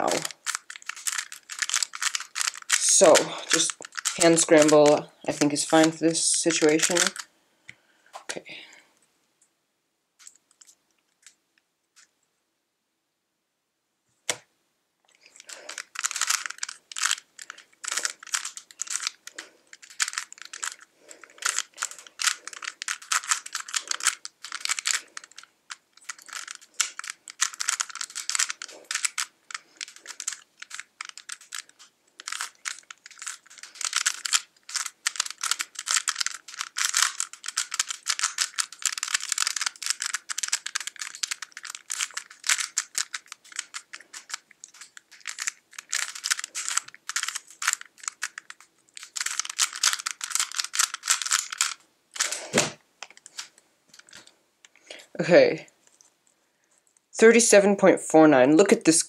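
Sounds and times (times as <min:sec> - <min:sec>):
plastic puzzle cube clicking: 0:00.0 - 0:07.3, 0:15.3 - 0:55.0.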